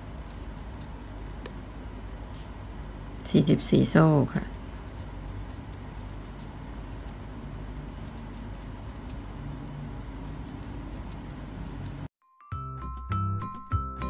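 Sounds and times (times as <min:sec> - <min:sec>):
background music with bright notes: 0:12.2 - 0:14.0.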